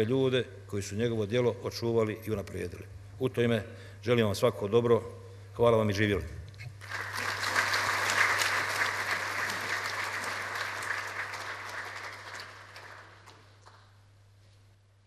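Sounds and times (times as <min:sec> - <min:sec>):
audience applause: 0:06.8 - 0:13.9.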